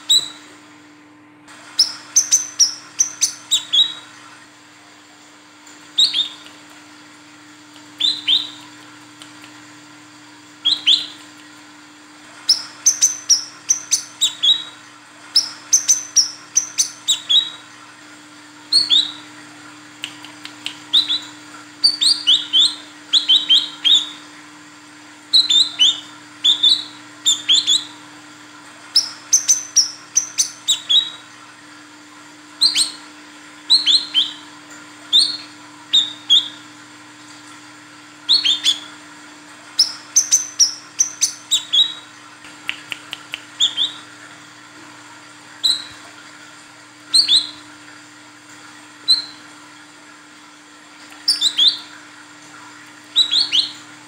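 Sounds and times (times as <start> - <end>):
sunbird chirping: 1.8 - 4.0, 5.9 - 6.6, 8.0 - 8.8, 10.6 - 11.3, 12.4 - 17.6, 18.7 - 19.3, 20.0 - 24.2, 25.3 - 27.9, 28.9 - 31.2, 32.6 - 33.0, 33.7 - 34.4, 35.1 - 36.6, 38.3 - 38.9, 39.8 - 42.1, 43.3 - 44.1, 47.1 - 47.6, 49.0 - 49.4, 51.3 - 51.9, 53.1 - 53.8.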